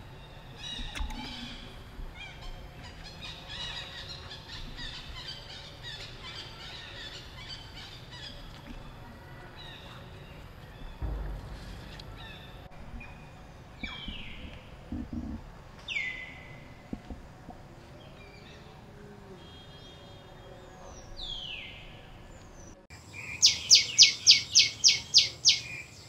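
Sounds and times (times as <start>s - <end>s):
low rumble: 0.0s - 18.3s.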